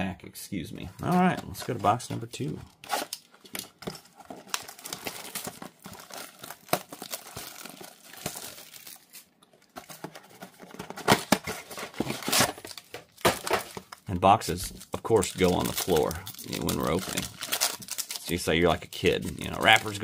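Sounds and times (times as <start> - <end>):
wrapping crinkling: 1.0 - 20.0
cardboard tearing: 2.8 - 3.2, 10.6 - 13.9.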